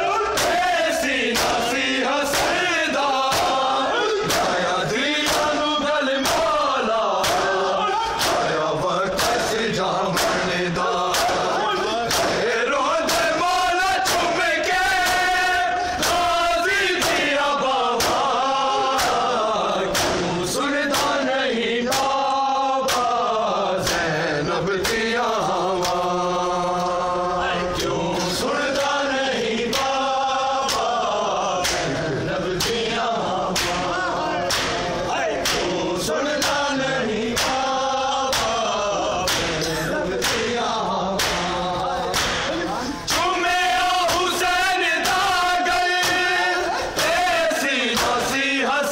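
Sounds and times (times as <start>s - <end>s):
men chanting in unison: 0.0s - 48.9s
hands slapping chests: 0.3s - 0.6s, 1.3s - 4.6s, 5.2s - 5.6s, 6.2s - 7.6s, 8.2s - 13.4s, 18.0s - 18.3s, 19.0s - 19.3s, 19.9s - 20.3s, 21.9s - 22.2s, 22.8s - 23.2s, 25.8s - 26.0s, 29.7s - 30.0s, 30.6s - 31.0s, 31.6s - 32.0s, 33.5s - 35.8s, 37.4s - 37.7s, 38.3s - 38.6s, 39.2s - 40.6s, 41.2s - 43.3s.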